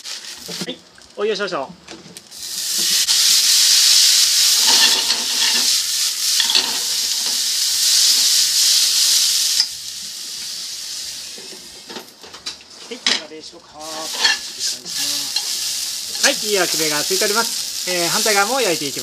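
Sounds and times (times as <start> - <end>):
noodles sizzling in hot pan: 0.0 - 1.3, 2.2 - 12.9, 13.6 - 19.0
chopsticks scraping pan: 4.6 - 5.8, 13.8 - 16.4.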